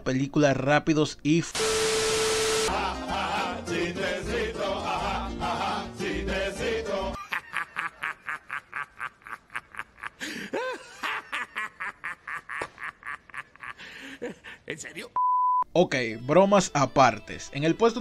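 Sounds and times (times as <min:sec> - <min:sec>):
music: 0:02.7 - 0:07.2, 0:15.8 - 0:18.0
man's loud laughter: 0:07.2 - 0:14.7
men laughing heartily: 0:07.2 - 0:14.7.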